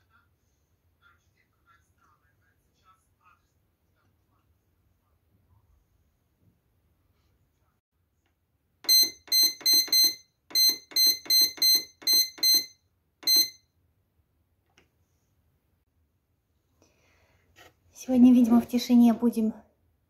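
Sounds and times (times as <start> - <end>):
bread maker control panel beeps: 8.8 - 13.6.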